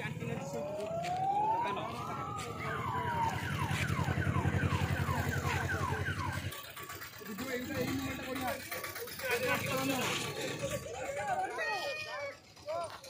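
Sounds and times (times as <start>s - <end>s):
low steady throb: 0.0s - 11.2s
electronic siren wailing and yelping: 0.4s - 6.6s.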